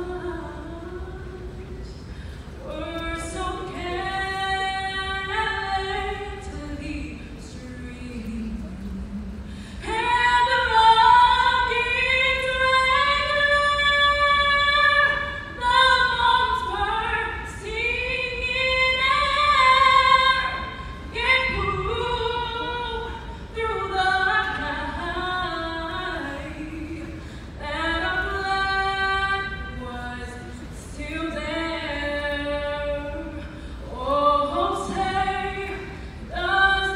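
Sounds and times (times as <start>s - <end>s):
woman singing unaccompanied: 0.0s - 2.0s, 2.6s - 36.9s
singer breathing: 2.0s - 2.6s, 9.4s - 9.8s, 27.2s - 27.6s, 33.4s - 33.9s.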